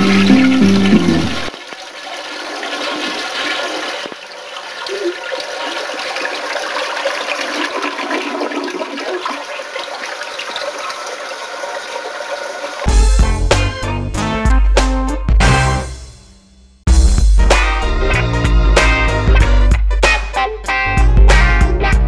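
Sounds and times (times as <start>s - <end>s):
toilet flushing: 0.0s - 13.4s.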